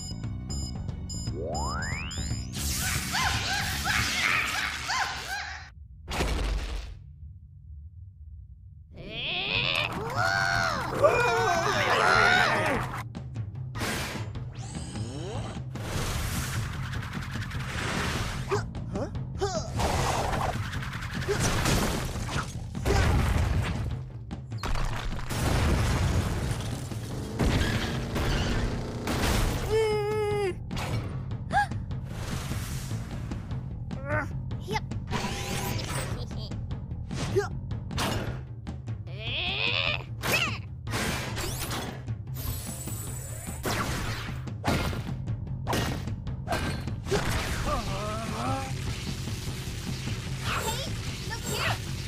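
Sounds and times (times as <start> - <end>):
dramatic background music: 9.7 - 52.0
stone crashes and booms: 24.6 - 27.1.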